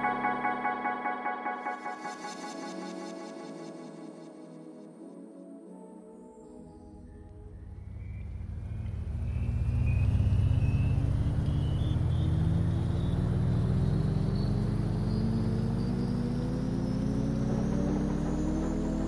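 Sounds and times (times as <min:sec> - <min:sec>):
vehicle accelerating: 0:07.3 - 0:19.0.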